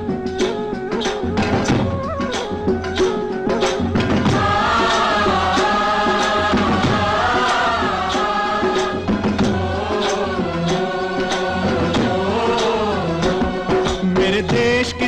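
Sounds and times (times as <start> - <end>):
percussion strikes: 0.0 - 15.0
steady drone: 4.0 - 14.7.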